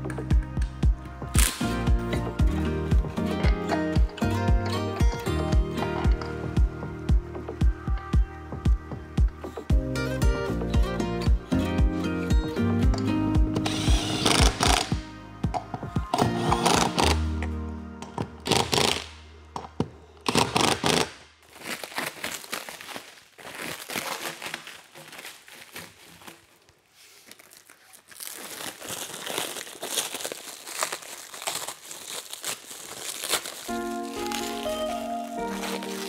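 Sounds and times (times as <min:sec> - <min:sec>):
background music: 0:00.0 - 0:21.0, 0:33.5 - 0:36.0
plastic wrapping crinkling and tearing: 0:01.4 - 0:01.7, 0:20.4 - 0:36.0
impact wrench bursts: 0:13.6 - 0:15.0.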